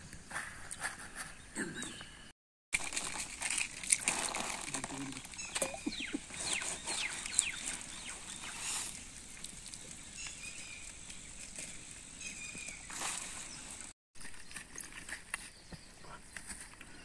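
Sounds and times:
leaf rustling and pattering: 2.8 - 15.7
bird chirping: 5.2 - 9.2, 9.8 - 17.0.

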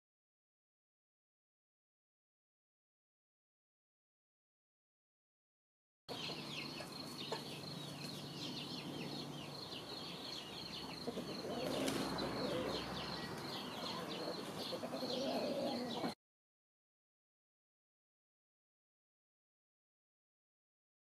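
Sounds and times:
chickens clucking: 6.1 - 16.2.

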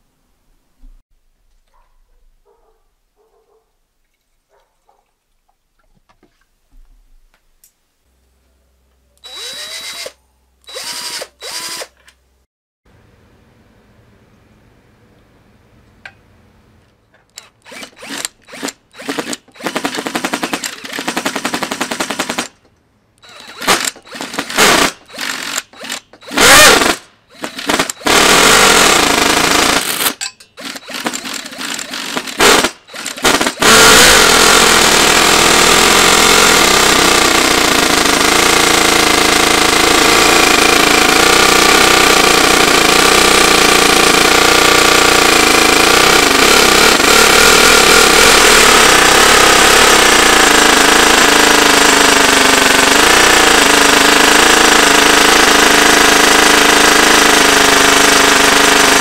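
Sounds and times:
electric drill cranking: 9.2 - 12.0, 17.3 - 22.5, 23.2 - 59.0
model engine popping and running: 17.7 - 22.6, 23.4 - 59.0.

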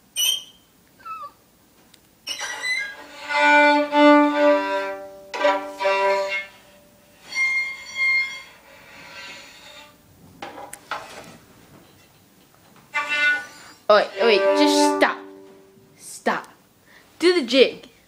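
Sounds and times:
violin bowed poorly: 2.3 - 10.0, 12.9 - 15.9.

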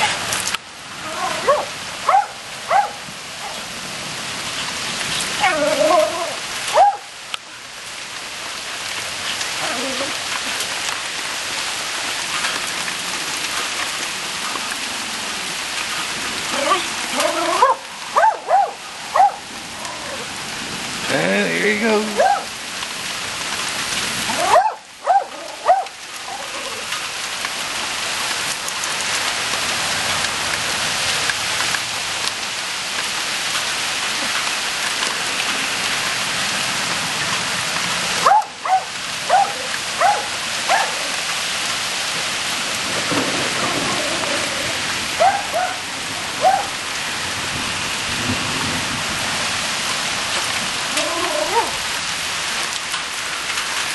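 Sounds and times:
steady rain falling: 0.0 - 53.9
dog barking: 1.3 - 3.6, 6.7 - 7.1, 17.5 - 19.4, 22.2 - 22.5, 24.3 - 26.0, 38.2 - 41.1, 45.2 - 45.8, 46.4 - 46.8.

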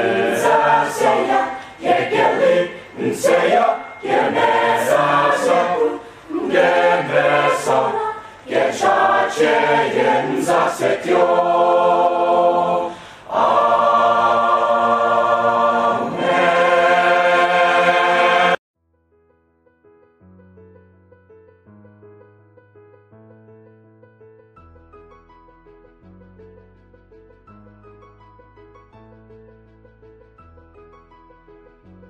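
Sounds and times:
mixed choir singing: 0.0 - 18.6.

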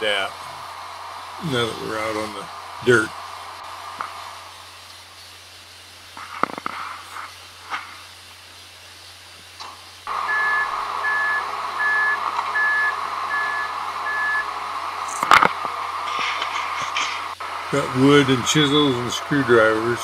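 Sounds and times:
reversing alarm beeping: 10.1 - 14.6
tracked mulcher engine: 10.1 - 20.0.

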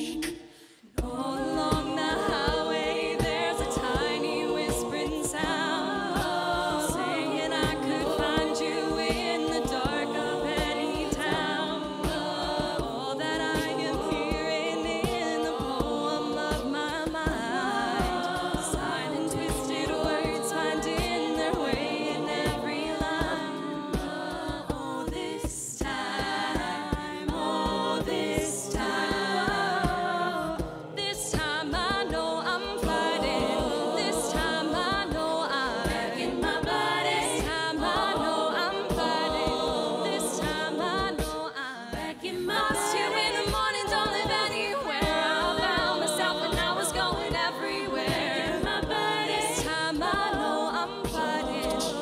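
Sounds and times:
a cappella group singing: 0.0 - 52.0
woman singing lead: 0.0 - 52.0.

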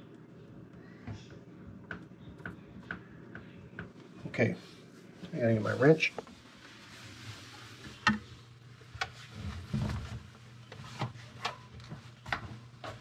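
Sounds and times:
low steady hum: 0.0 - 13.0
rustling: 4.6 - 13.0.

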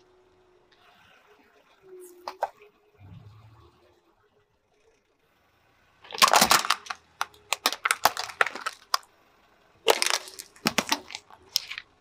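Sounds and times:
drink can crushed: 6.0 - 9.1, 9.9 - 11.9
plastic toy crushed by car tyre: 6.0 - 9.1, 9.8 - 12.0.

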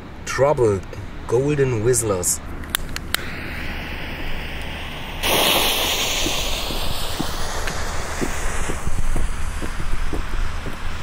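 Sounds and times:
burning fuse hissing and crackling: 2.7 - 11.0.

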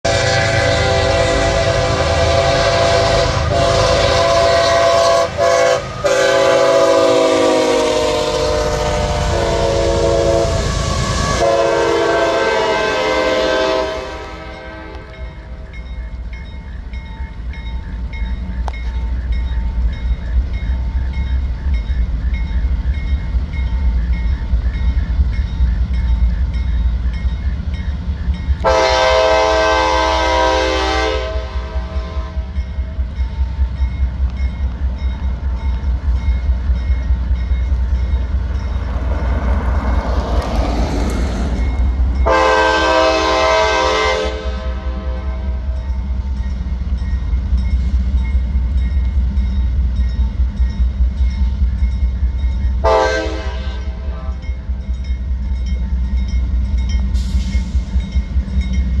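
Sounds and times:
locomotive air horn blasts: 0.0 - 15.6, 28.6 - 32.6, 42.2 - 45.8, 52.8 - 54.5
diesel train rumble: 0.0 - 59.0
crossing bell ringing: 11.4 - 59.0.

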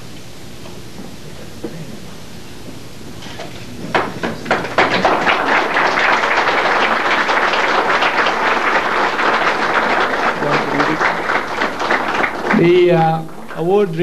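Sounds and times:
audience applause: 3.9 - 13.9.

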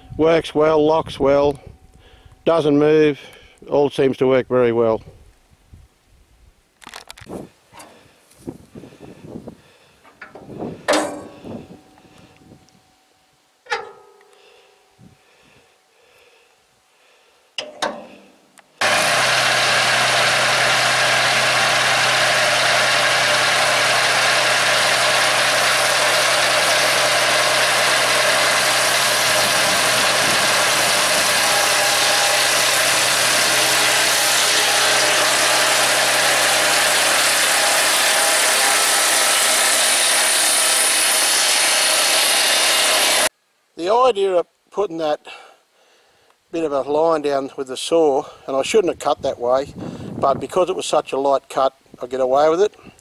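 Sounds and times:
sawmill engine and circular blade: 10.2 - 12.3, 17.6 - 43.3.

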